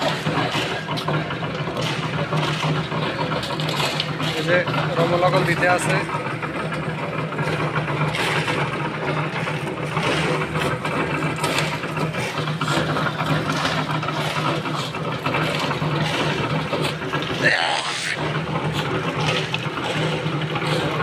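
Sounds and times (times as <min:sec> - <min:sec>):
concrete mixer running: 0:00.0 - 0:21.0
shovels scraping gravel: 0:07.5 - 0:21.0.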